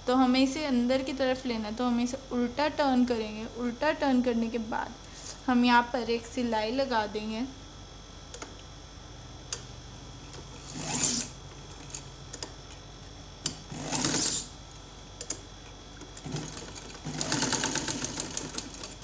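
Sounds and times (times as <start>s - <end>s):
sewing machine stitching fabric: 10.6s - 11.3s, 13.7s - 14.5s, 16.2s - 19.0s.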